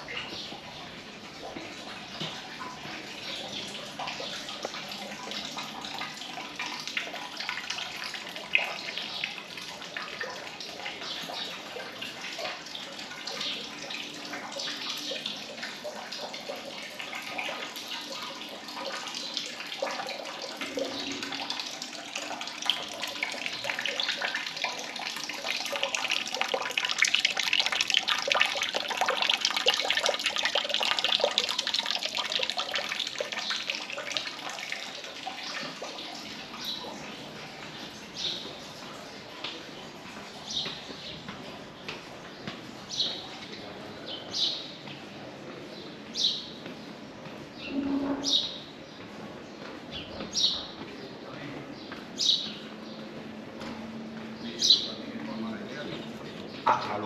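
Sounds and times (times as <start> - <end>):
running splashing water: 0.0 - 42.1.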